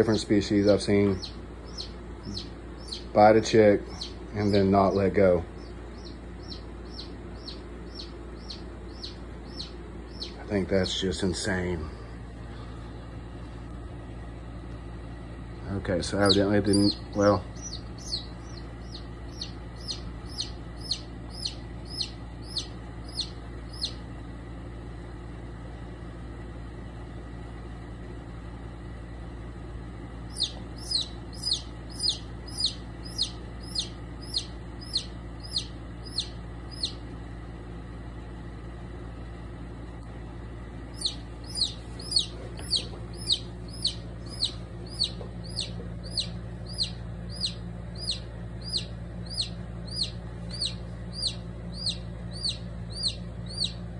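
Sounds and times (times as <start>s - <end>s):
steady low hum: 0.0s - 53.9s
chick peeping: 0.5s - 11.0s, 16.2s - 24.1s, 30.3s - 37.1s, 40.9s - 53.8s.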